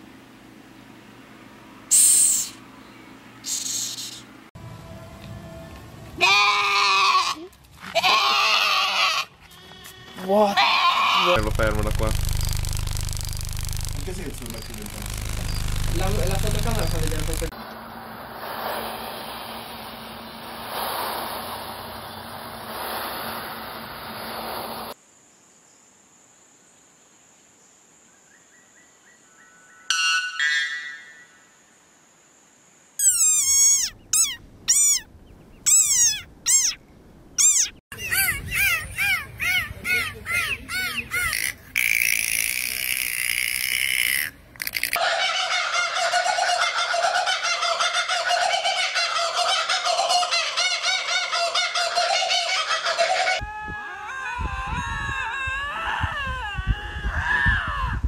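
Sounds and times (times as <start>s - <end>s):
high insect whine: 11.1s - 26.4s, 41.2s - 45.0s
snake hissing: 18.3s - 25.0s
kookaburra laughing call: 33.0s - 35.1s, 37.4s - 53.4s.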